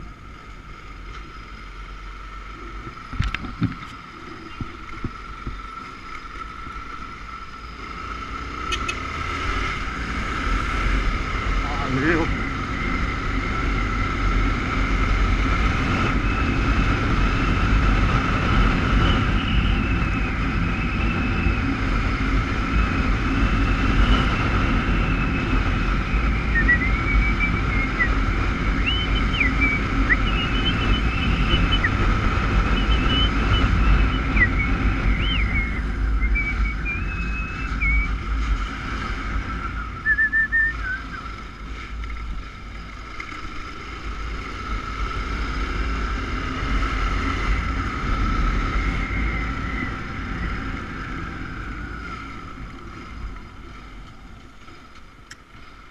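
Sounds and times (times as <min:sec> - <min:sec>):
motorcycle engine running: 0:00.0 - 0:55.9
road and wind rush: 0:00.0 - 0:55.9
short high whistling glides: 0:39.4 - 0:41.5.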